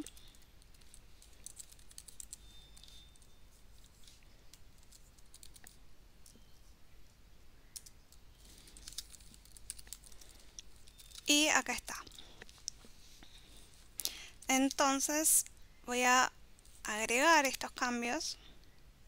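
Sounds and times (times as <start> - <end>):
faint keyboard typing: 0.0 - 6.4, 7.0 - 15.0.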